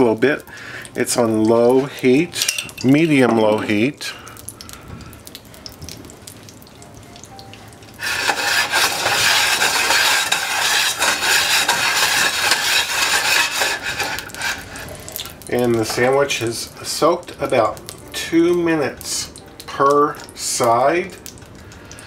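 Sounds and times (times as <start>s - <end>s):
butter sizzling in skillet: 7.8s - 20.8s
skillet scraping on burner coil: 8.0s - 16.2s.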